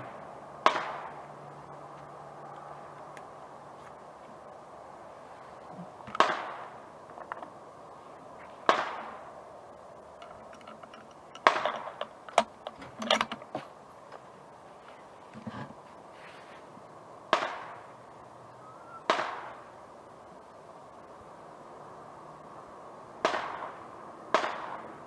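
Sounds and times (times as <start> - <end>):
rifle shots echoing: 0.0 - 1.2, 6.1 - 6.8, 8.6 - 9.4, 11.4 - 12.1, 17.3 - 17.9, 19.1 - 19.7, 23.2 - 25.0
small clicks and knocks: 7.1 - 7.6, 10.1 - 14.2.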